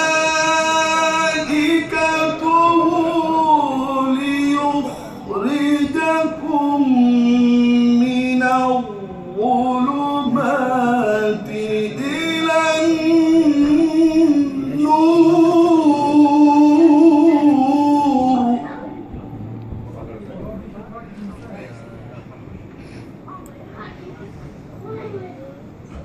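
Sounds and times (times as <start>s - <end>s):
man chanting melodically: 0.0s - 19.9s.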